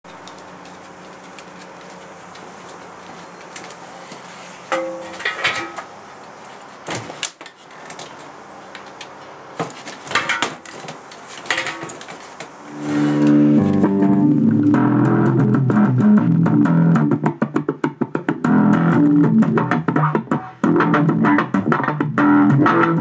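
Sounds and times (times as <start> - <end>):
plucked bass string notes: 12.7 - 23.0.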